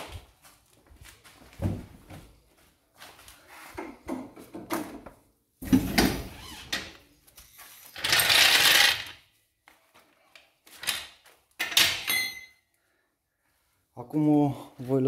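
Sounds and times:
jack scraping on concrete: 0:07.6 - 0:09.1.

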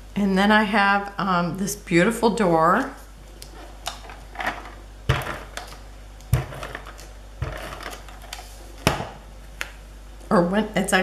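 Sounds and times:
tape crackling: 0:03.3 - 0:09.8.

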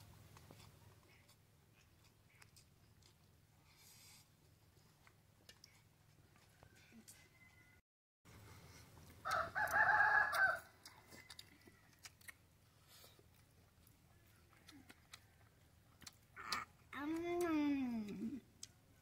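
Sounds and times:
rooster crowing: 0:06.6 - 0:07.8, 0:09.2 - 0:12.0.

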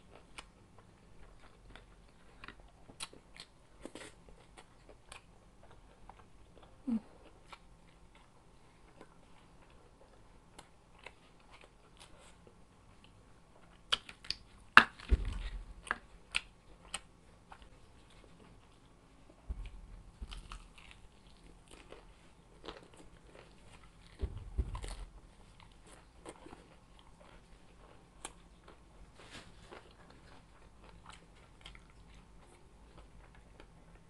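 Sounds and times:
person chewing: 0:00.0 - 0:15.0, 0:15.8 - 0:19.0, 0:19.6 - 0:34.0
low thump: 0:15.1 - 0:15.7, 0:19.5 - 0:20.5, 0:24.1 - 0:25.0.

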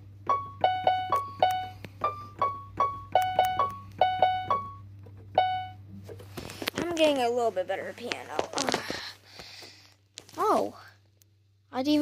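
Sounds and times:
electronic keyboard notes: 0:00.0 - 0:05.9.

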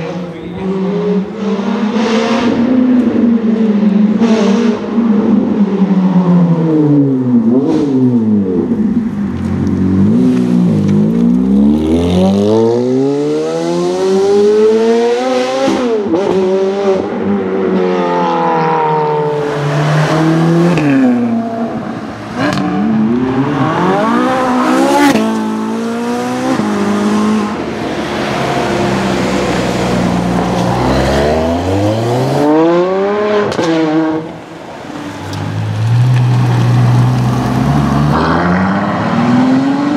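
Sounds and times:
supercar engines revving: 0:00.0 - 0:39.9.

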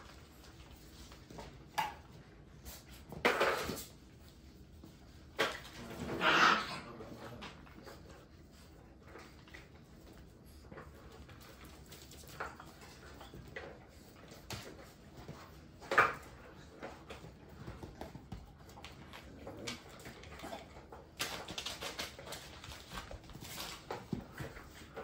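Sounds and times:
puppy paws clattering on hard floor: 0:00.0 - 0:25.0
puppy vocal sounds: 0:05.5 - 0:08.0.

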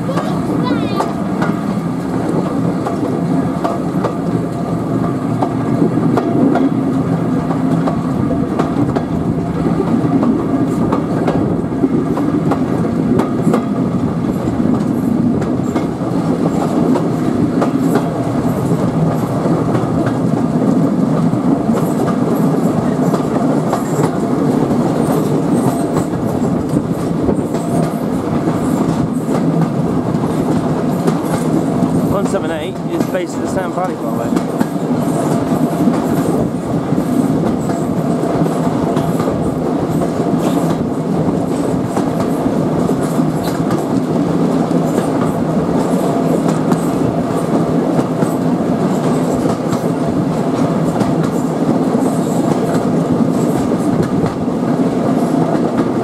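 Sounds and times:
train rolling rumble: 0:00.0 - 0:56.0
wheels clicking over rail joints: 0:09.8 - 0:54.5.

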